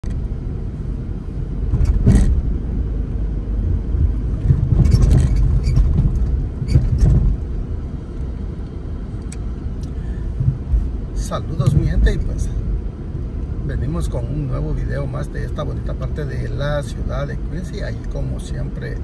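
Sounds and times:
car road and engine rumble: 0:00.0 - 0:19.0
sharp knocks: 0:01.7 - 0:02.5.

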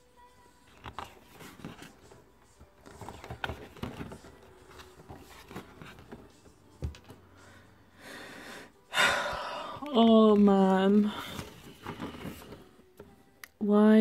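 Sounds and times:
paper pages rustling: 0:00.7 - 0:07.2, 0:10.2 - 0:12.8.

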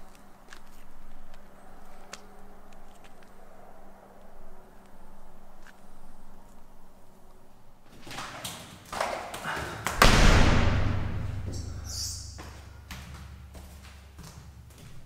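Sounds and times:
low rumble and hiss: 0:09.9 - 0:12.8
loud booming thud: 0:10.0 - 0:11.8.

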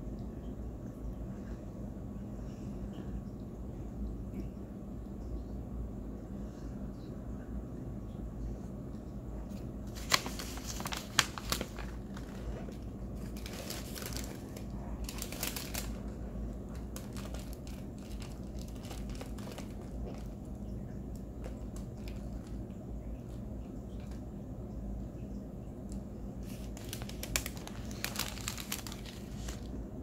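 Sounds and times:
crinkling and crackling: 0:09.4 - 0:24.3, 0:25.8 - 0:29.8.

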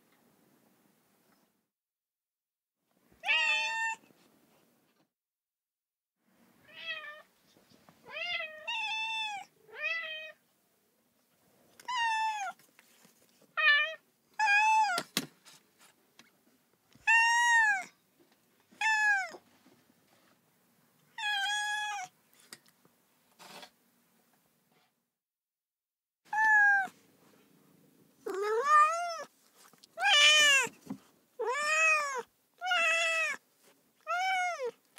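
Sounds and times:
cat meowing: 0:03.2 - 0:04.0, 0:06.6 - 0:07.3, 0:17.0 - 0:17.9, 0:18.8 - 0:19.4, 0:21.2 - 0:22.1, 0:26.3 - 0:27.0, 0:28.2 - 0:29.3, 0:30.0 - 0:30.8, 0:31.4 - 0:33.4, 0:34.0 - 0:34.8.

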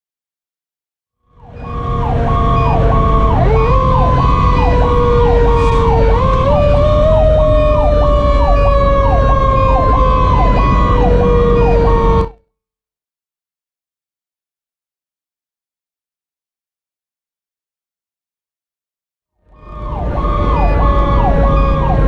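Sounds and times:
mechanical siren wailing: 0:01.3 - 0:12.4, 0:19.5 - 0:22.0
electronic siren sweeping: 0:01.4 - 0:12.4, 0:19.5 - 0:22.0
truck engine and tyres rumbling: 0:01.4 - 0:12.4, 0:19.5 - 0:22.0.

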